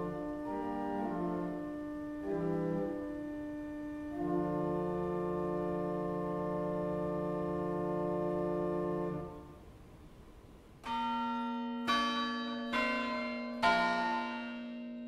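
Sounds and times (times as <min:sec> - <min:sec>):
pipe organ chord: 0:00.0 - 0:09.6.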